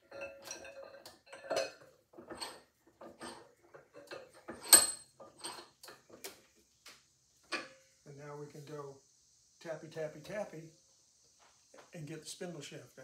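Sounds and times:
metal knocks and clinks: 0:00.0 - 0:06.2.

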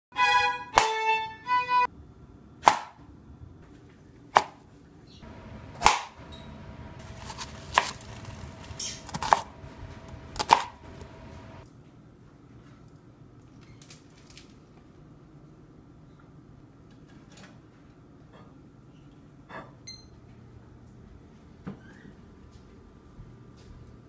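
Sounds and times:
knife chopping on cutting board: 0:05.4 - 0:06.3, 0:07.0 - 0:11.6.

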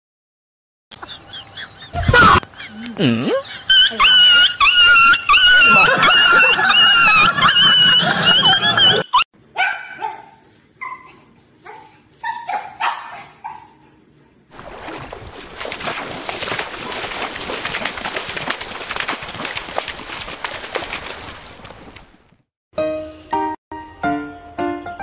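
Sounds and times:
dogs yipping: 0:03.4 - 0:09.0, 0:09.6 - 0:14.4
dogs splashing into pool: 0:14.5 - 0:22.3.

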